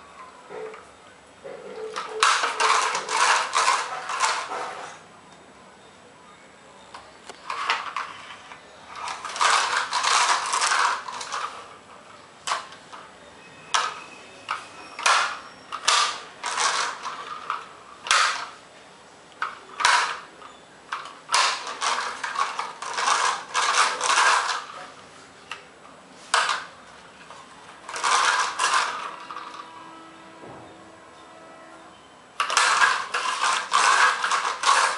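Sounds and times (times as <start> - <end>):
plastic toy car clattering on tiles: 1.5 - 5.0, 6.9 - 13.1, 13.7 - 18.6, 19.4 - 29.8, 32.4 - 34.9.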